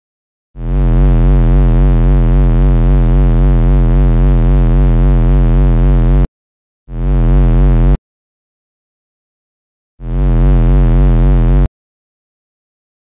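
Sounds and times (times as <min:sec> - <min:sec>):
low electronic buzzing drone: 0:00.6 - 0:06.3, 0:06.9 - 0:08.0, 0:10.0 - 0:11.7.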